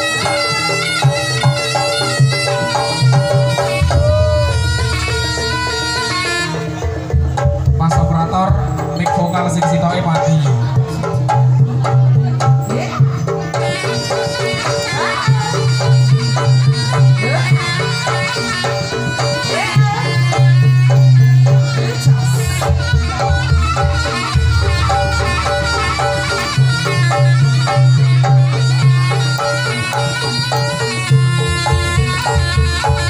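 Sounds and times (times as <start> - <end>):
drums: 0.0 - 33.0
reedy shawm melody: 0.0 - 33.0
gongs: 20.5 - 33.0.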